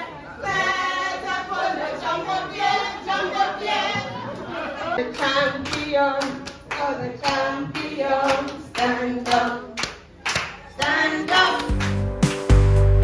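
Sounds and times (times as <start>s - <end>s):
group of people singing: 0.0s - 12.0s
rhythmic handclapping: 5.0s - 13.0s
recorded music with deep bass: 11.8s - 13.0s.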